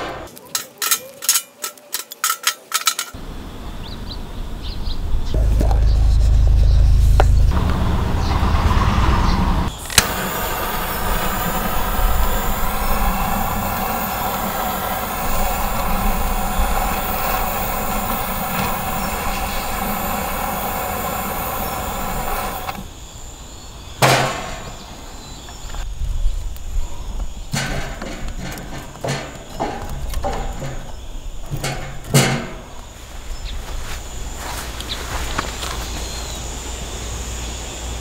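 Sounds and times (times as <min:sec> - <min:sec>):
torch lighter hissing: 0:09.7 - 0:23.0.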